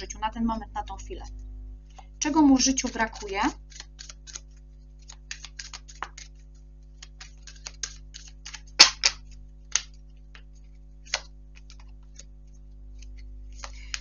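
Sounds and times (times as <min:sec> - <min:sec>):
cards being shuffled: 0:02.7 - 0:14.0.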